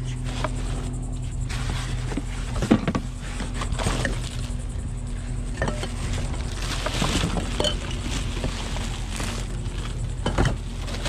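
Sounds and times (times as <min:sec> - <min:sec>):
steady low hum: 0:00.0 - 0:11.0
items clicking and knocking: 0:02.0 - 0:04.6, 0:05.4 - 0:11.0
plastic bags crinkling: 0:03.4 - 0:11.0.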